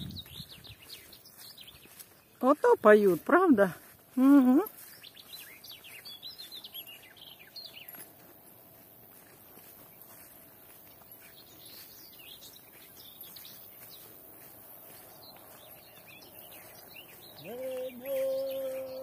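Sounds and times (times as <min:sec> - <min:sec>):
songbirds chirping and singing: 0:00.0 - 0:19.0
person holding a long note: 0:17.4 - 0:19.0.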